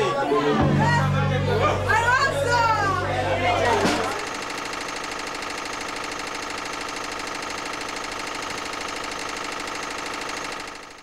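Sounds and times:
machine clattering steadily: 0:03.8 - 0:11.0.

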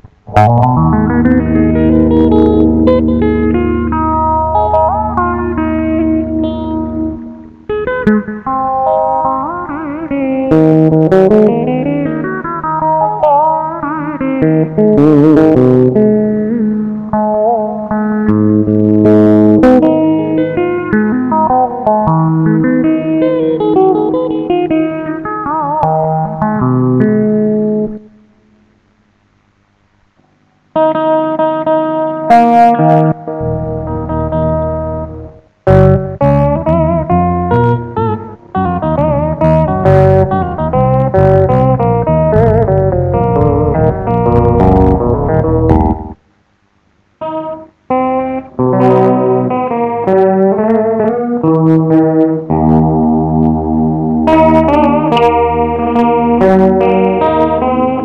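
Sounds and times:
low guitar note held: 0:00.0 - 0:07.6, 0:38.7 - 0:46.2
electric guitar notes: 0:00.0 - 0:28.6, 0:30.7 - 0:46.2, 0:47.2 - 0:58.0.

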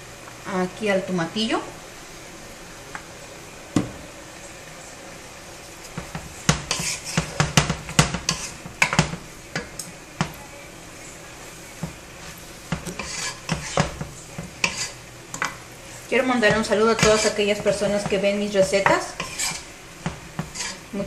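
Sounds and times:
wooden spoon scraping saucepan: 0:05.9 - 0:09.1, 0:11.8 - 0:15.6, 0:16.2 - 0:21.0.

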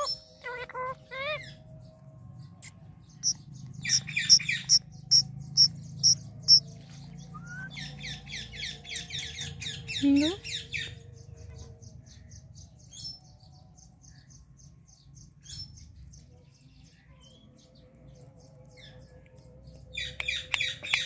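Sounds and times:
parakeet chirping: 0:00.0 - 0:01.6, 0:02.6 - 0:11.0.

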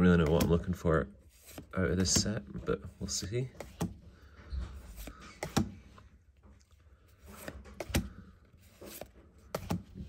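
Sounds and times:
cards sliding and snapping: 0:01.3 - 0:02.2, 0:03.6 - 0:06.1, 0:07.0 - 0:10.0.

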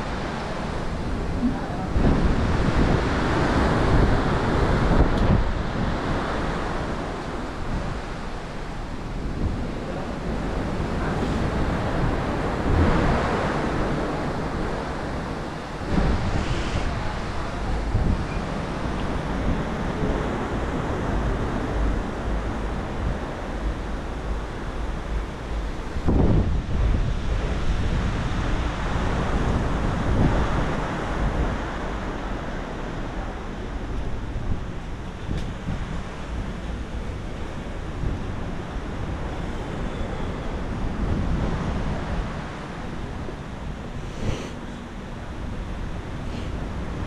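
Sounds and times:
sea rushing alongside ship: 0:00.0 - 0:47.0
wind buffeting microphone: 0:00.0 - 0:47.0.

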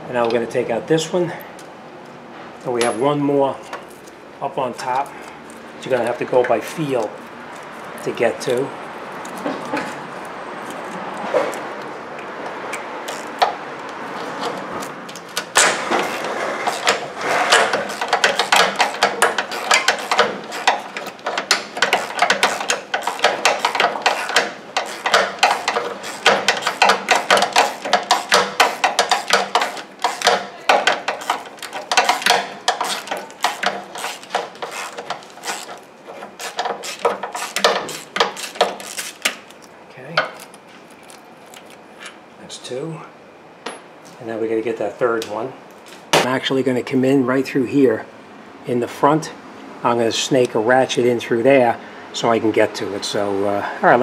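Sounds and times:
socket ratchet clicking: 0:15.1 - 0:35.8.

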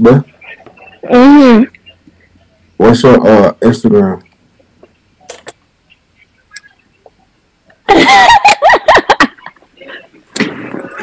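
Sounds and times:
loud high-pitched laughter: 0:07.9 - 0:09.5.

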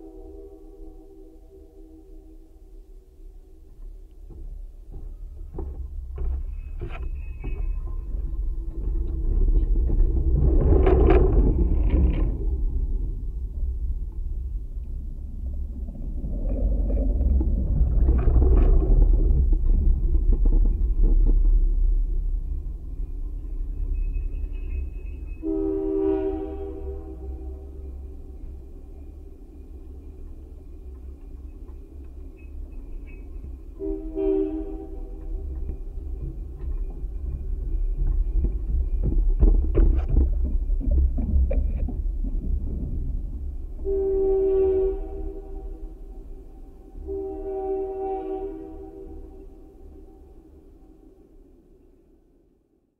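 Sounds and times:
locomotive horn: 0:00.0 - 0:03.1, 0:25.4 - 0:28.4, 0:33.8 - 0:35.7, 0:43.8 - 0:51.2
rumble and knocking of boardwalk: 0:03.6 - 0:25.4, 0:34.7 - 0:44.2.

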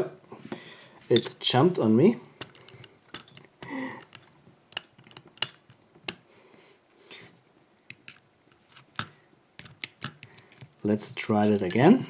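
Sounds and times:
padlock parts clicking and clinking: 0:01.1 - 0:06.3, 0:07.9 - 0:12.0.

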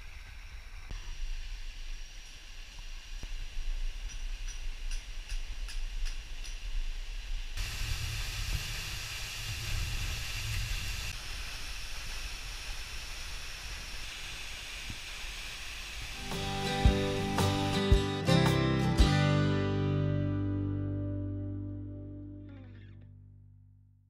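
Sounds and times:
quiet hiss with faint ticks: 0:00.7 - 0:07.6
waterfall rushing: 0:16.1 - 0:19.0.

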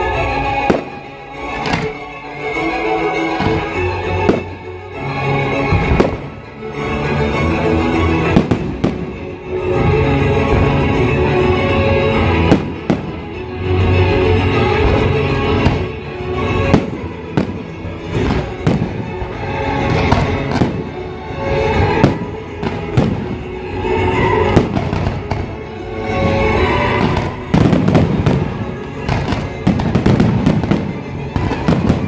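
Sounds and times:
show music playing: 0:00.0 - 0:32.0
fireworks shells bursting: 0:00.7 - 0:02.1.

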